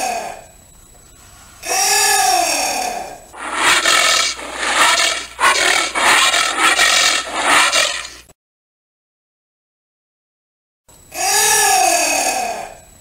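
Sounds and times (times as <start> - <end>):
anteater harsh hoarse calls: 3.4 - 8.2.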